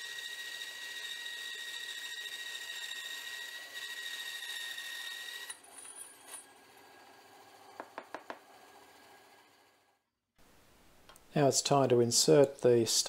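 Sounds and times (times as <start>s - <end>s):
bandsaw whining through metal: 0.0s - 7.8s.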